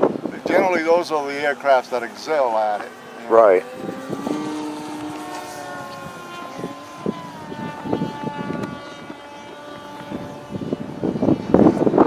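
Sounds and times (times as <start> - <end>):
model plane motor whine: 0.0 - 12.0
wind buffeting microphone: 0.0 - 12.0.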